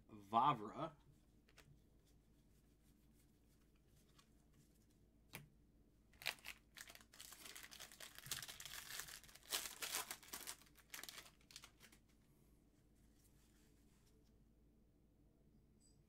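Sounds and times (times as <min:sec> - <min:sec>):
plastic wrapper tearing and crinkling: 0:06.2 - 0:12.1.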